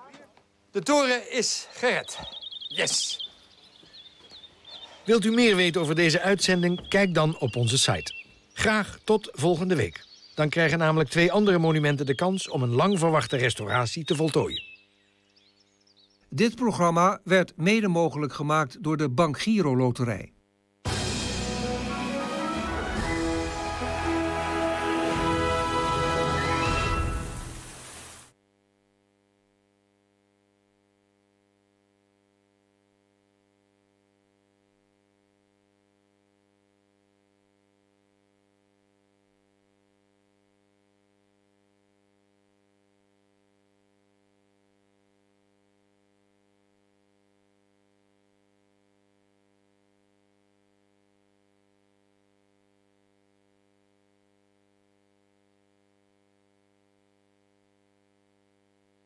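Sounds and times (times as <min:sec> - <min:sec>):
faint electrical hum with hiss: 0:27.2 - 0:59.0.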